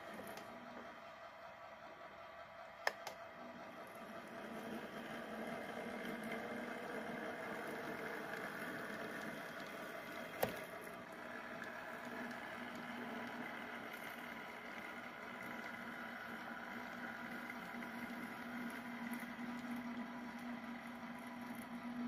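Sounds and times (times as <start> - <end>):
model train motor hum: 0.0 - 22.0
sharp click: 2.8 - 3.2.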